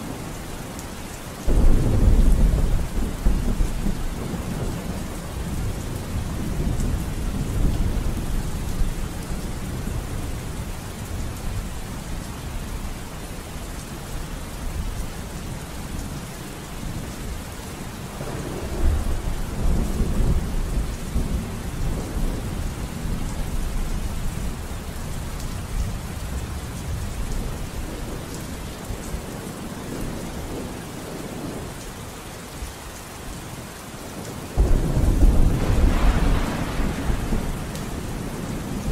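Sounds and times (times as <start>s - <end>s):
steady rain: 0.0s - 38.9s
rolling thunder: 1.5s - 9.1s, 18.2s - 23.9s, 34.6s - 38.9s.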